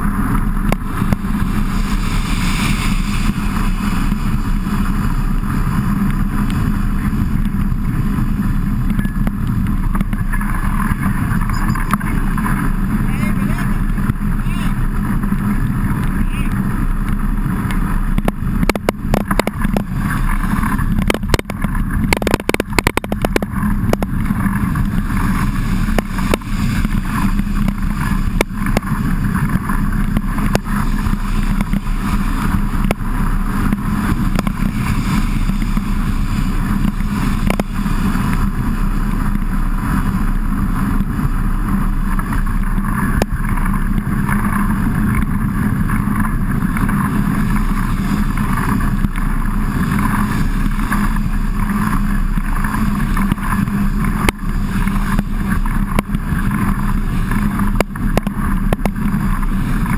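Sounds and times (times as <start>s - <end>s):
heavy rain: 0.0s - 59.9s
wind rushing: 0.0s - 59.9s
bike knocks and rattles: 17.0s - 39.6s.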